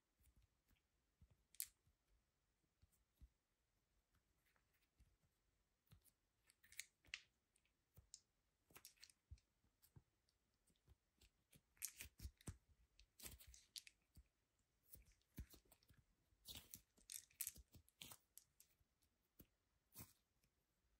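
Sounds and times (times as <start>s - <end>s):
sticky clicks of kneaded dough: 5.8s - 20.6s.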